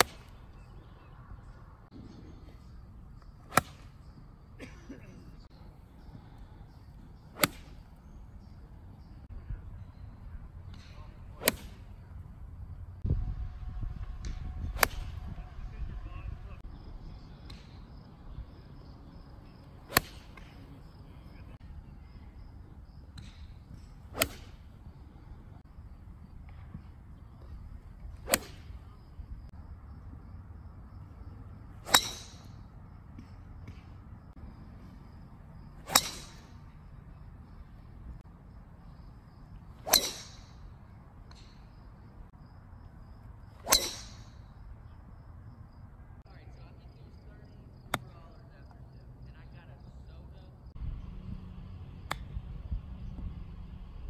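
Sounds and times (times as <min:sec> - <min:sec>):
golf club striking ball: 0:03.5 - 0:03.8, 0:07.4 - 0:08.4, 0:19.9 - 0:20.6, 0:23.2 - 0:24.6, 0:28.2 - 0:28.7, 0:31.8 - 0:32.5, 0:35.8 - 0:36.5, 0:39.8 - 0:40.5, 0:43.6 - 0:44.4
club swish: 0:11.4 - 0:11.8, 0:24.1 - 0:24.5, 0:28.2 - 0:28.7, 0:39.8 - 0:40.3, 0:43.6 - 0:44.2.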